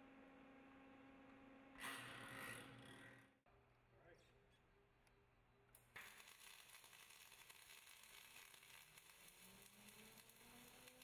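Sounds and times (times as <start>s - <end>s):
welding arc crackling hiss: 6.0s - 11.0s.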